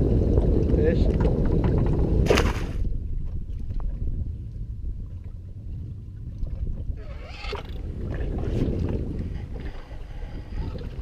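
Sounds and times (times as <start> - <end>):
wind and water rumble: 0.0 - 11.0.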